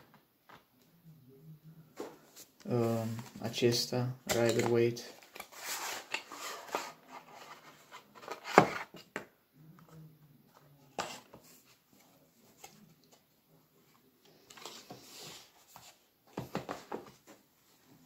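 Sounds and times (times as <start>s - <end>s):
cards rustling and clicking: 4.2s - 9.2s.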